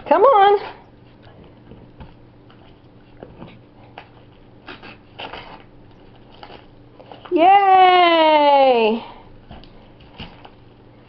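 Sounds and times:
faint steady hum: 0.0 - 11.0
wrapping paper crinkling and ripping: 4.7 - 7.3.

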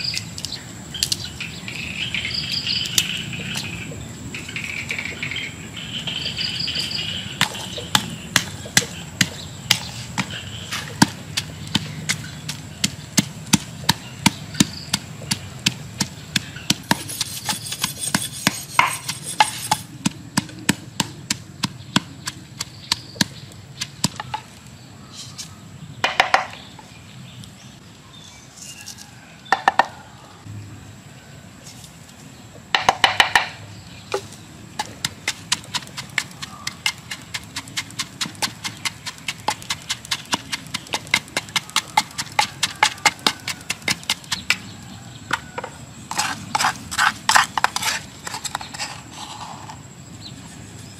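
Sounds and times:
wooden pestle pounding in mortar: 7.4 - 24.4, 32.8 - 33.6, 34.8 - 44.7.

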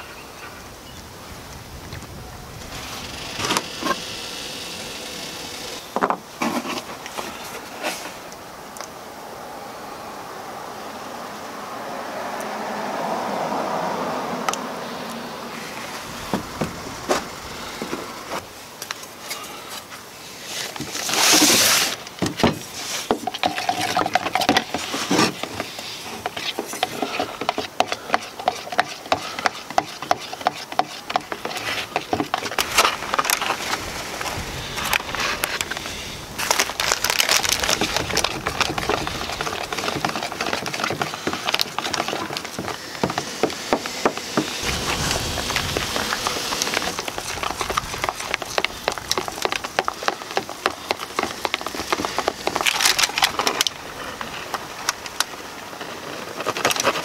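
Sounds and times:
stick stirring in plastic bucket: 20.4 - 57.0
brief rushing noise: 44.5 - 47.4.

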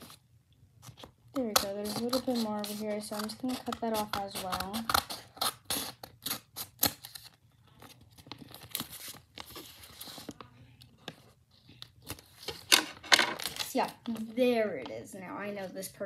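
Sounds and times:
scissors cutting paper: 0.8 - 7.4
paper rustling: 7.0 - 14.4.

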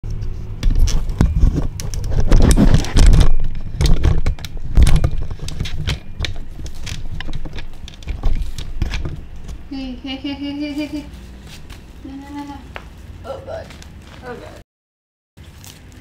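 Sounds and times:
newspaper crackling: 15.4 - 16.0.

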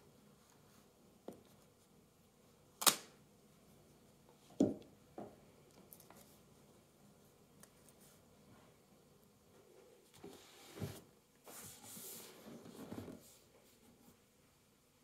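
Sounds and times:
sharp snap: 2.8 - 3.2.

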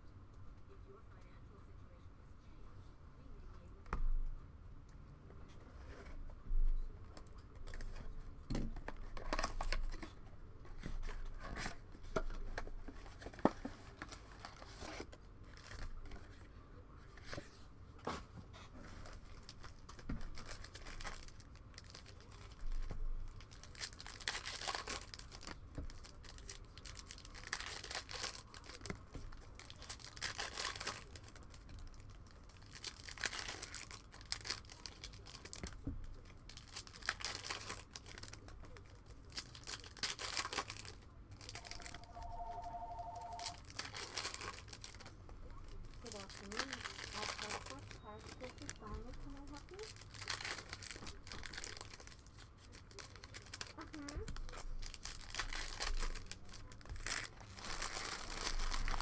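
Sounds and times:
foil wrappers tearing and crinkling: 19.3 - 35.8, 36.5 - 41.9, 43.6 - 45.1, 46.0 - 59.0.

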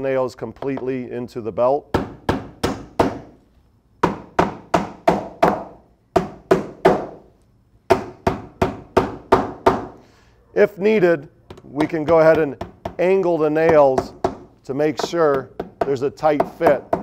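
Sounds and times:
hammer driving nails: 1.9 - 3.3, 4.0 - 7.2, 11.5 - 17.0.

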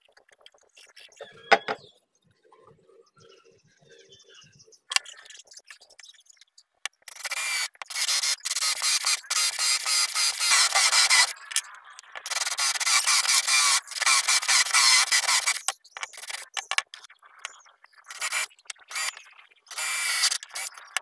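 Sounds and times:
hole saw cutting wood: 7.2 - 11.4, 12.3 - 15.6, 19.7 - 20.7.

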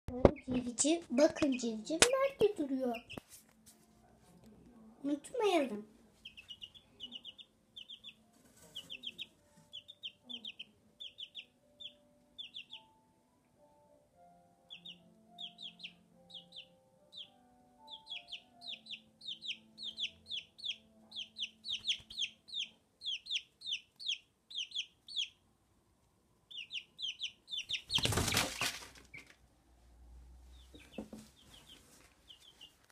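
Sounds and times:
chick peeping: 0.1 - 3.2, 6.2 - 12.9, 14.7 - 25.4, 26.5 - 29.3, 30.5 - 32.8
loud rustling: 27.9 - 29.2.

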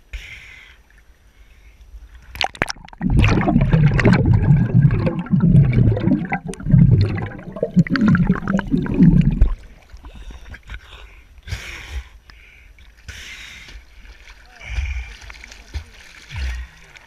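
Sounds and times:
open-air water sound: 0.0 - 17.0
short water splashes: 2.3 - 10.0, 13.7 - 17.0
muffled underwater bubbling: 2.4 - 10.4.

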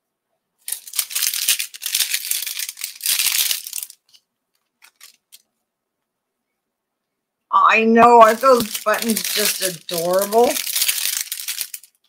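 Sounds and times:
plastic bag crinkling: 0.6 - 5.5, 8.0 - 12.0.

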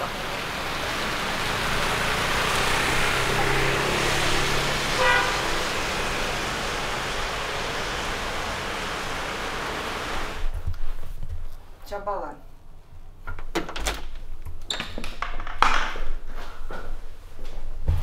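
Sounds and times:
heavy rain: 0.0 - 10.5
street traffic: 0.0 - 10.5
car horn toot: 4.7 - 6.5.

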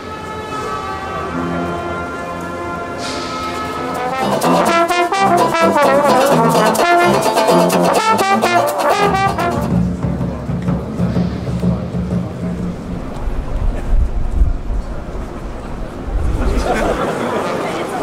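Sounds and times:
brass band playing: 0.1 - 10.1.

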